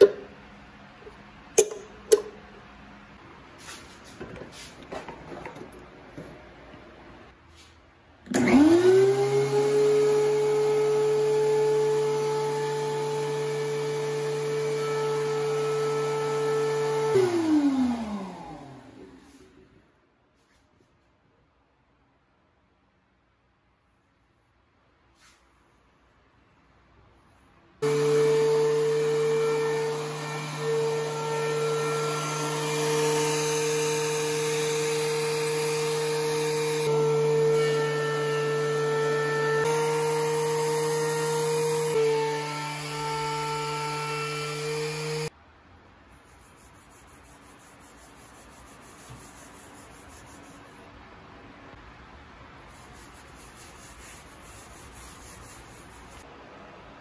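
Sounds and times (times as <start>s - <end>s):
thickness planer whining: 8.3s - 19.6s, 27.8s - 45.3s.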